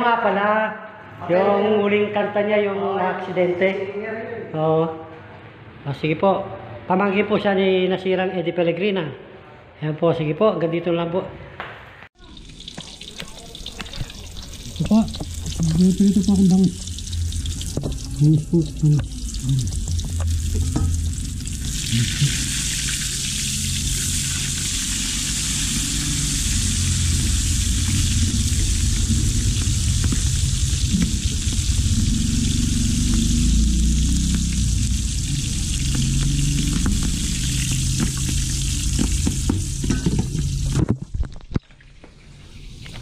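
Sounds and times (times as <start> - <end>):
fish frying in hot oil: 12.2 - 40.8.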